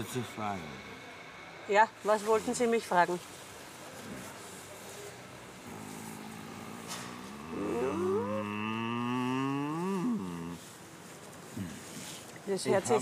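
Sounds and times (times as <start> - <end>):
man groaning: 6.5 - 10.6.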